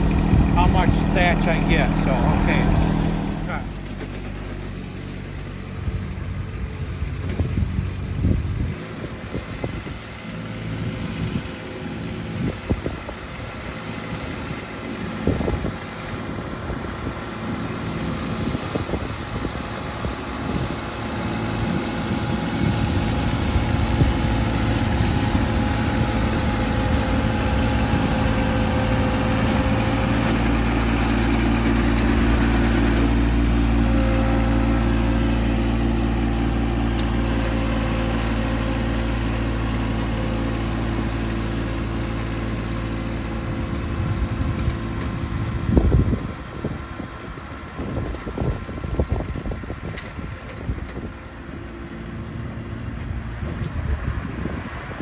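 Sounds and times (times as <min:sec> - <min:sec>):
garden tractor running: 0:00.0 - 0:55.0
rotary broom sweeping lawn: 0:04.0 - 0:47.6.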